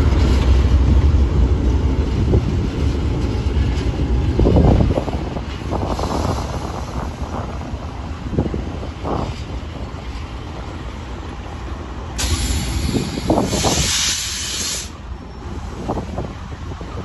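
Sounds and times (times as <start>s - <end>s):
low rumble: 0.0s - 11.0s
air brakes hissing: 12.2s - 15.0s.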